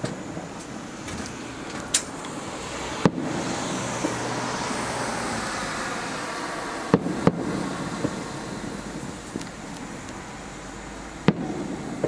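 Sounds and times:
firework shells bursting: 6.8 - 12.0.

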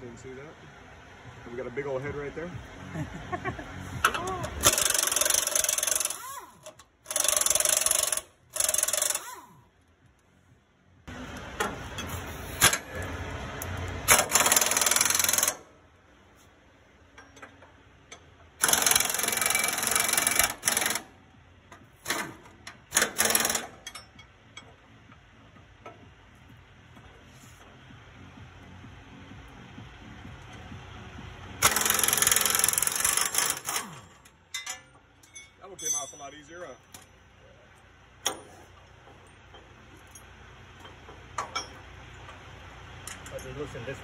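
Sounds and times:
air impact wrench hammering: 4.0 - 9.6, 14.0 - 15.7, 17.2 - 21.2, 21.8 - 24.8, 31.4 - 35.5, 38.2 - 38.8.

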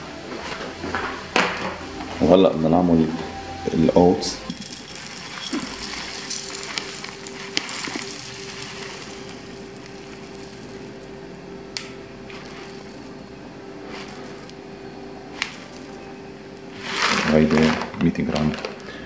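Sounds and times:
faint steady hum: 0.0 - 19.0
dry flakes poured into bowl: 4.2 - 11.1, 11.8 - 14.6, 15.3 - 16.1, 16.7 - 17.9.

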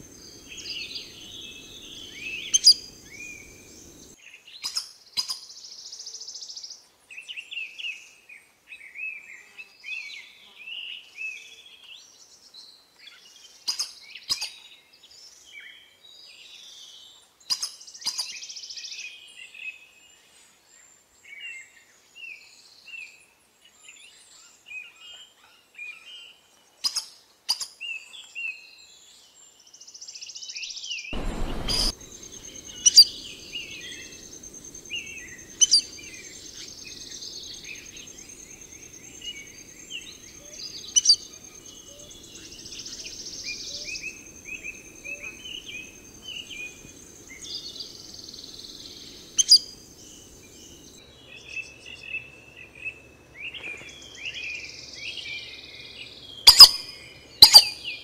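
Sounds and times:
birds chirping and calling: 0.0 - 4.2, 31.2 - 51.0, 56.5 - 58.0
soft buzzy hiss: 0.0 - 4.2, 31.2 - 51.0
sharp loud clicks: 31.2 - 32.0
low rumble: 31.2 - 33.6.

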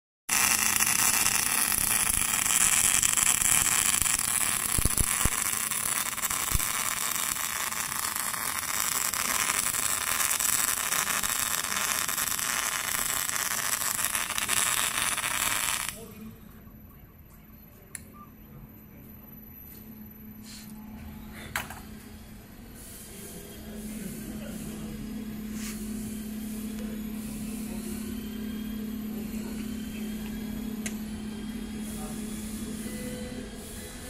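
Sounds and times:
welding arc hissing: 0.3 - 16.0.

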